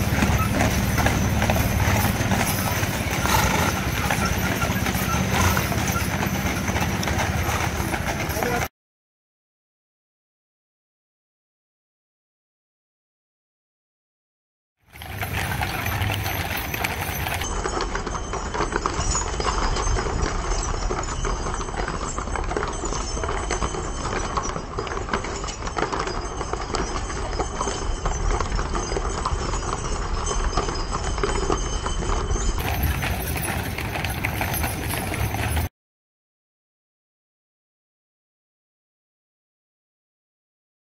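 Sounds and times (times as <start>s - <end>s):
horse hooves clip-clopping: 0.0s - 8.7s, 14.9s - 35.7s.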